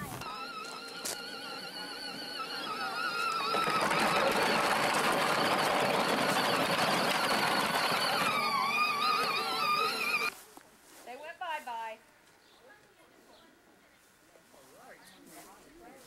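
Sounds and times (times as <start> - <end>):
electric motor whining: 0.0 - 10.3
wheels rolling over grass: 0.0 - 11.9.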